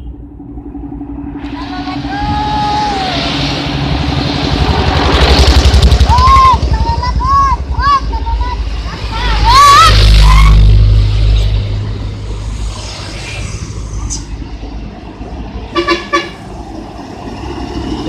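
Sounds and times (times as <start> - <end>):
road traffic: 0.0 - 18.0
truck engine passing: 0.0 - 18.0
musical truck horn: 15.7 - 16.4
vehicle horn toots: 15.7 - 16.4.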